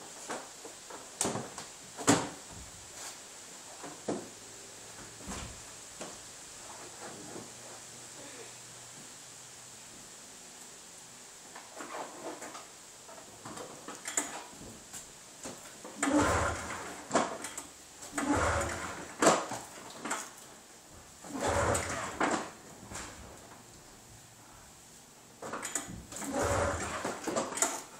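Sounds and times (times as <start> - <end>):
recoil starter pulls rattling: 16.0 - 20.3, 21.3 - 22.6, 25.4 - 27.9.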